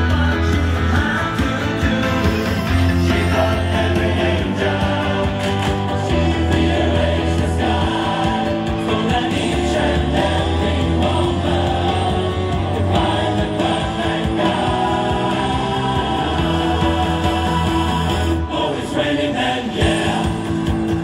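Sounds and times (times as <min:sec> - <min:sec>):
loud music with singing and bass: 0:00.0 - 0:21.0.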